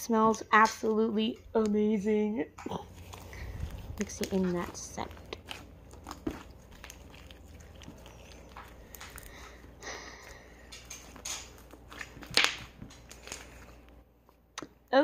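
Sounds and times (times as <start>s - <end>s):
slime squishing and crackling: 2.6s - 14.0s.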